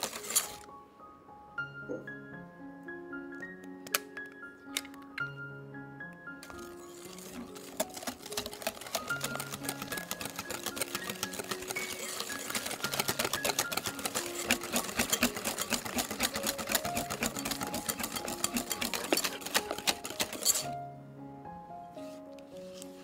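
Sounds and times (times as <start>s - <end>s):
soft background music: 0.0s - 23.0s
whisk clicking against glass bowl: 7.1s - 20.7s.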